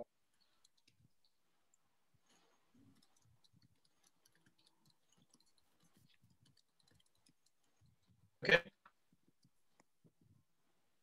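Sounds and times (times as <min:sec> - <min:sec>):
faint clicks: 0:00.3 - 0:08.2.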